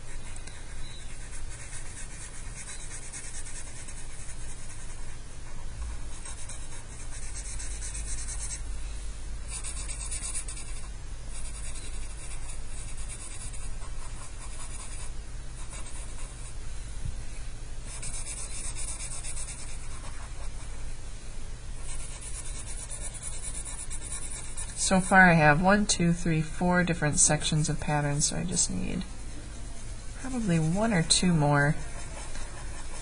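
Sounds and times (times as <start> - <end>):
marker scratching on paper: 0.0 - 8.6, 9.5 - 16.5, 17.9 - 20.8, 21.8 - 25.1, 30.2 - 33.0.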